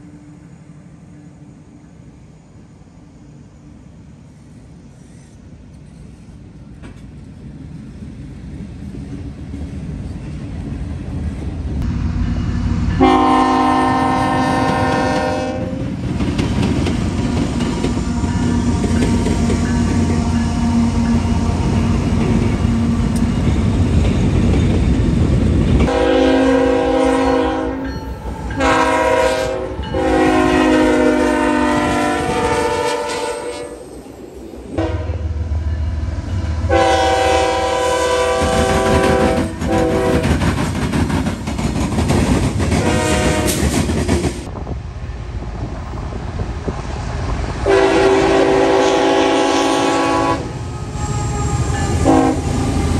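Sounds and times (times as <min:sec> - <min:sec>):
freight locomotives rumbling: 0:00.0 - 0:52.9
locomotive air horn blasts: 0:13.0 - 0:15.9, 0:18.1 - 0:22.0, 0:25.9 - 0:33.9, 0:34.8 - 0:35.3, 0:36.7 - 0:40.3, 0:42.8 - 0:43.6, 0:47.6 - 0:52.6.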